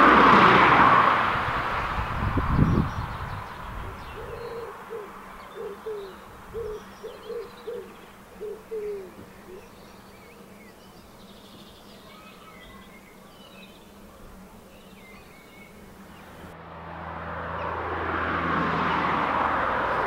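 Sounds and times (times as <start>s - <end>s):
small birds chirping: 2.0s - 16.6s
doves cooing: 3.7s - 11.3s.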